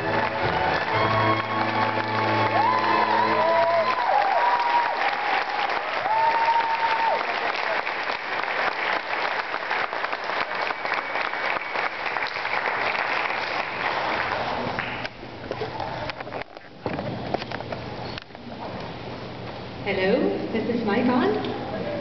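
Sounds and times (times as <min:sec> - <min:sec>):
audience applauding: 0:00.0 - 0:15.8.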